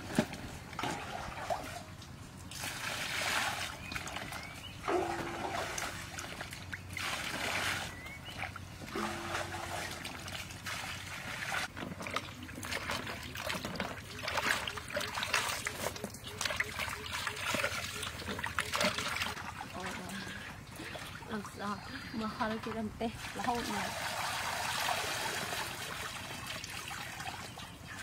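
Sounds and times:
water splashing over vegetables: 2.5s - 21.6s.

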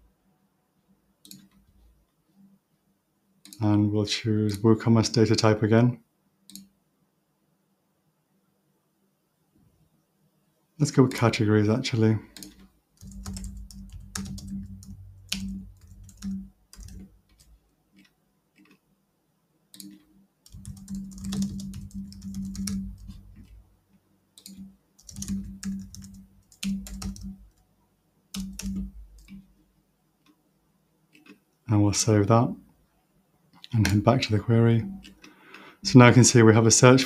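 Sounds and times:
typing on a keyboard: 12.3s - 18.8s, 19.8s - 23.6s, 24.4s - 27.6s, 28.3s - 29.5s.

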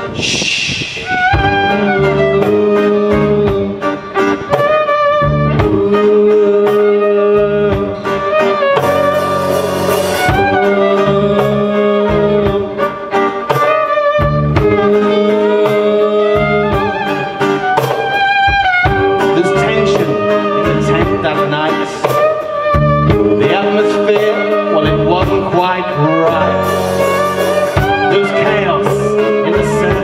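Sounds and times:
folk-rock band playing: 0.0s - 30.0s
fiddle melody: 1.0s - 6.6s, 7.9s - 30.0s.

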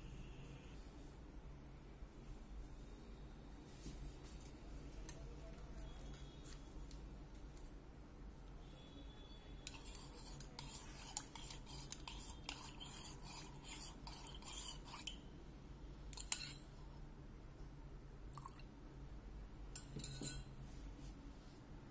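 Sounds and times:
teaspoon clinking in ceramic mug: 19.8s - 20.5s.

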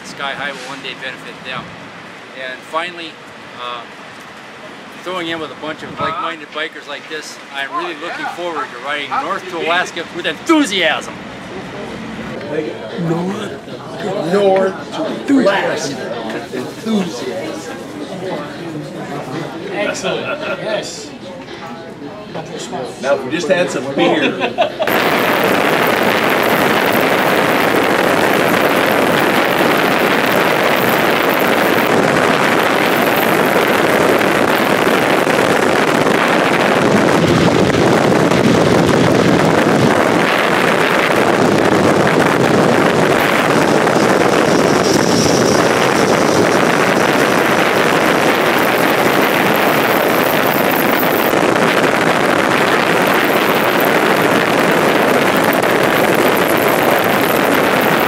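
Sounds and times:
road noise: 0.0s - 19.5s, 24.9s - 58.0s
wind on microphone: 24.9s - 58.0s.

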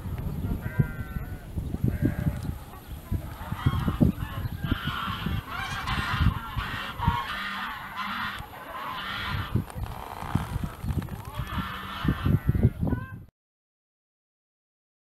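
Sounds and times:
farm animals honking or bleating: 0.6s - 2.4s, 3.5s - 9.6s, 11.4s - 12.8s.

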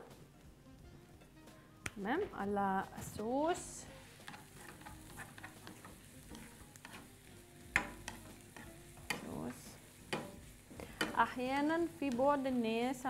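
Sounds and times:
vegetables sizzling in oil: 2.4s - 13.0s
spatula scraping a pan: 3.6s - 12.3s
spatula knocking against pan: 7.7s - 9.3s, 10.1s - 12.3s.

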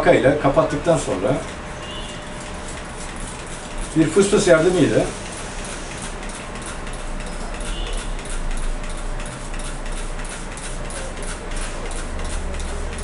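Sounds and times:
spray bottle hissing mist: 3.6s - 6.4s.

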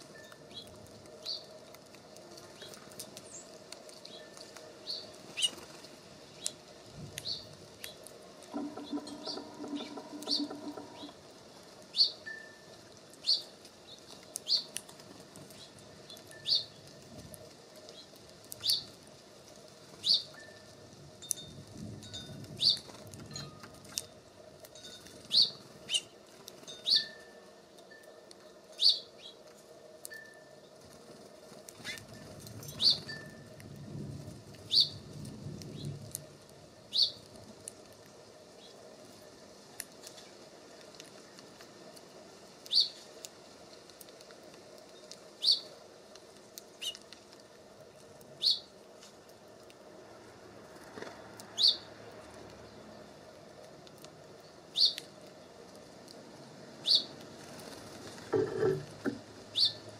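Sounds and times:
songbird chirping: 7.2s - 14.8s, 54.4s - 55.6s
low buzzing hum: 8.4s - 11.8s.

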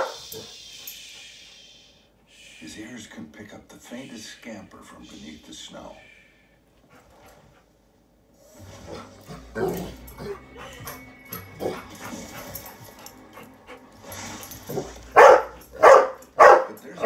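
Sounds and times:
dog barking and yipping: 14.4s - 17.0s.

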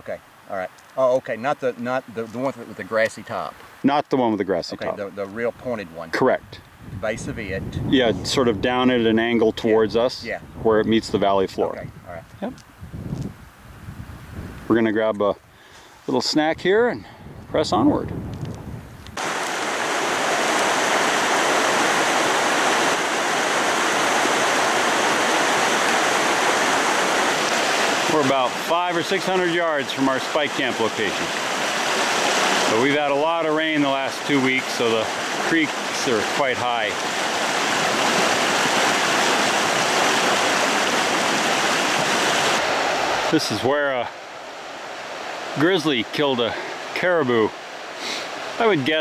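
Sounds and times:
creek rushing over rocks: 0.0s - 6.4s, 19.2s - 49.0s.

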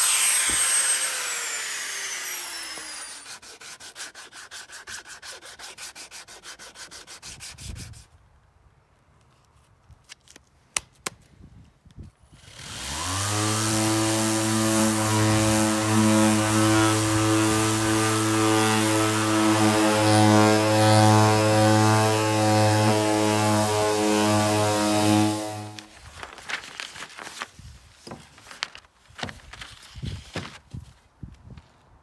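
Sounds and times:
orbit sander sanding wood: 0.0s - 8.0s, 12.4s - 26.1s.

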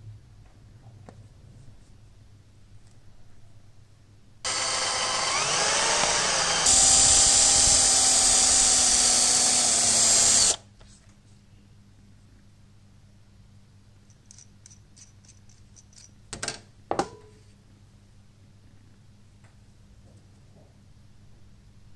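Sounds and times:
power tool motor whining: 4.5s - 10.6s.

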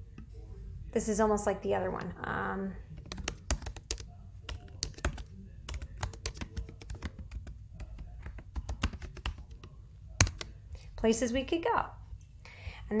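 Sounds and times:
typing on a computer keyboard: 3.0s - 10.6s.

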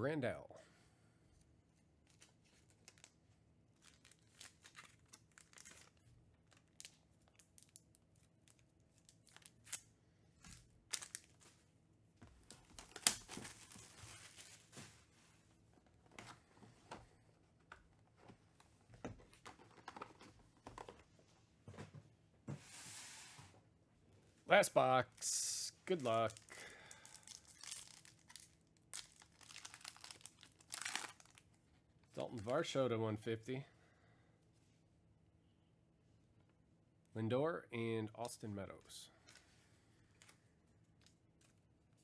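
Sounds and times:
wrapper tearing and crinkling: 3.8s - 9.9s, 10.5s - 11.5s, 12.5s - 14.7s, 26.0s - 31.5s.

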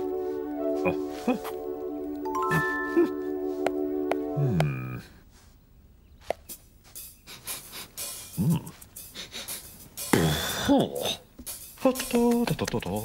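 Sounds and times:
chord sliding down in pitch: 0.0s - 4.9s.

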